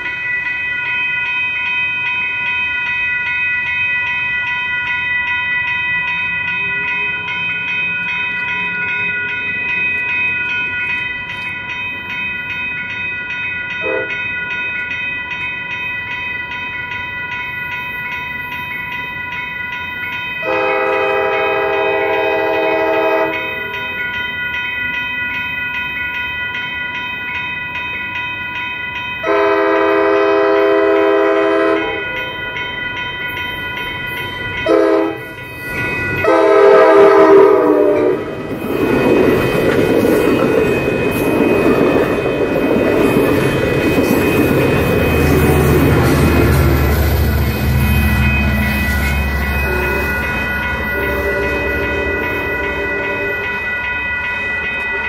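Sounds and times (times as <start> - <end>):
electronic crossing bell dinging: 0.0 - 55.0
train horn blasts: 13.8 - 14.2, 20.4 - 23.6, 29.2 - 32.1, 34.6 - 35.3, 36.2 - 38.2, 47.8 - 53.5.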